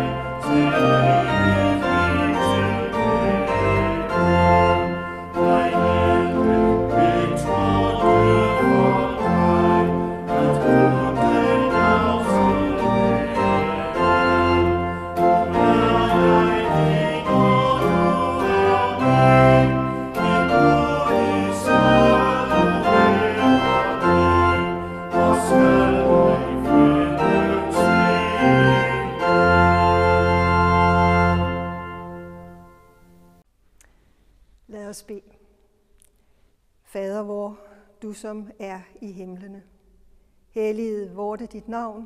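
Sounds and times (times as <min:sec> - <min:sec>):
group singing a hymn: 0:00.0 - 0:31.7
church organ: 0:00.0 - 0:33.5.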